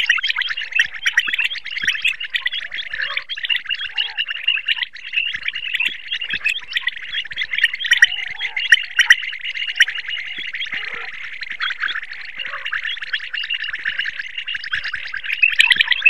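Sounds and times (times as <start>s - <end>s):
quail calling: 0.0s - 16.0s.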